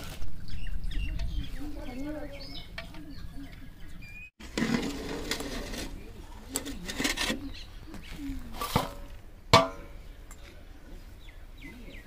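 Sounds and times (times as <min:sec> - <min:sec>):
sharp metal knocks: 0:09.5 - 0:10.0.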